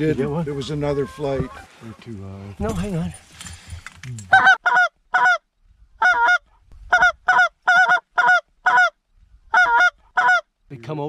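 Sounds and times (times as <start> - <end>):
goose call honks and clucks: 0.2 - 2.0, 4.3 - 5.4, 6.0 - 10.5.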